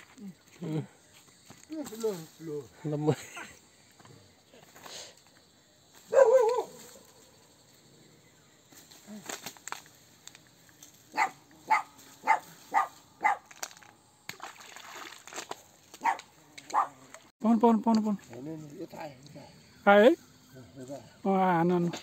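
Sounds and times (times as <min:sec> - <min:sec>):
dog barking: 0:06.1 - 0:06.8, 0:11.1 - 0:13.5, 0:16.0 - 0:17.0.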